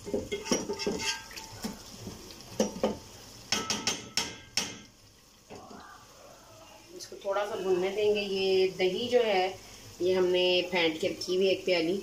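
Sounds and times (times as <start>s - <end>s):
wooden spoon scraping a pot: 0.0s - 2.0s.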